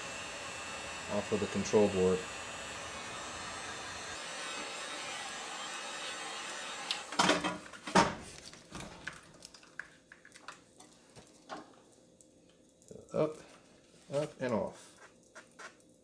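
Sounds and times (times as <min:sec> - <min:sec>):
heat gun blowing: 0:00.0 - 0:07.2.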